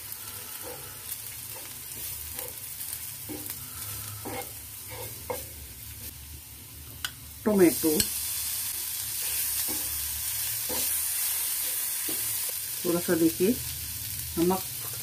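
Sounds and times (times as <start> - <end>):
onions sizzling in butter: 0.0 - 15.0
spatula scraping pan: 0.3 - 5.6.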